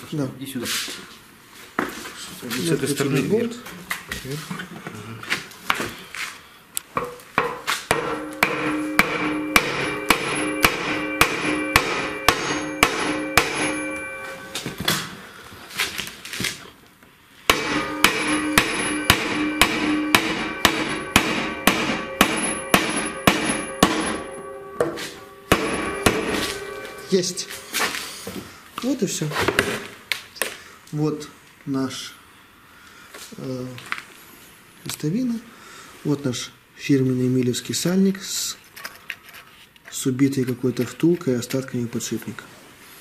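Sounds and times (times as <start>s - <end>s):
hammer striking steel shaft: 7.0s - 14.8s, 17.5s - 28.2s
steel tub ringing: 7.9s - 14.7s, 17.5s - 27.9s.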